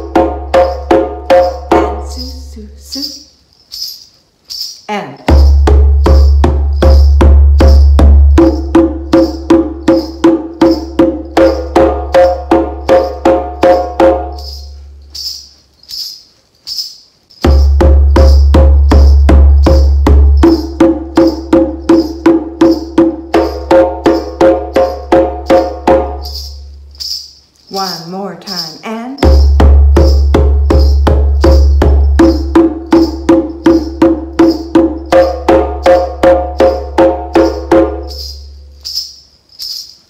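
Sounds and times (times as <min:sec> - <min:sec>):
djembe played with hands: 0:00.0 - 0:02.2, 0:05.3 - 0:15.3, 0:17.4 - 0:27.1, 0:29.2 - 0:38.6.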